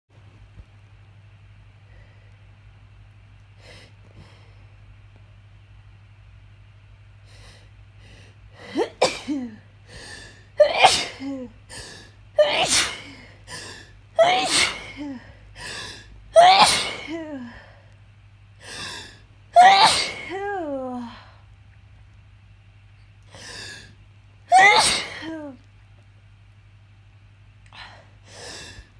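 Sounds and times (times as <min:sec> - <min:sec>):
person sneezing: 0:14.2 - 0:15.0, 0:24.5 - 0:25.6.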